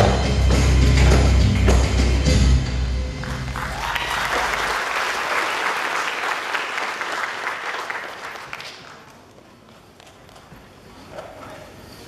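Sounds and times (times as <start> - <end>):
audience applauding: 3.2 - 9.3.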